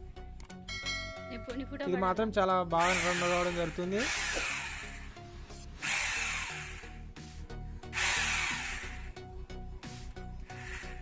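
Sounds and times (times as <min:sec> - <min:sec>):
hammer drill drilling into wood: 0:02.8 - 0:05.2, 0:05.8 - 0:07.0, 0:07.9 - 0:09.2, 0:10.4 - 0:11.0.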